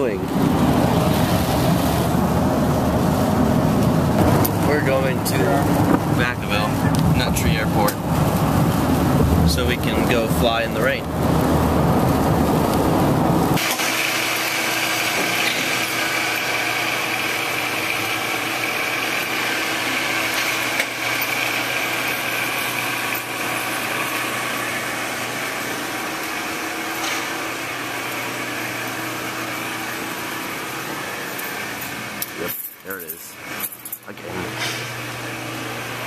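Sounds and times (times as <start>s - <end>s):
electric door lift motors humming: 0.0s - 32.4s, 34.5s - 36.0s
car cabin road rumble: 0.3s - 13.6s.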